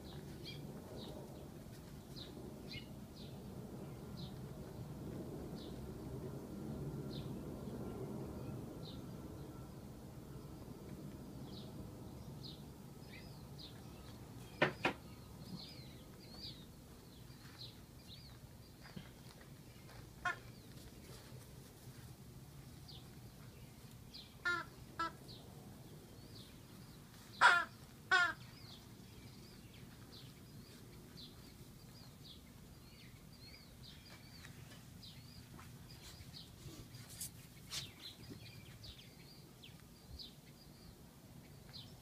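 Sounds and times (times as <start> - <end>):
harsh crow caws: 24.4 - 25.2, 27.4 - 28.5.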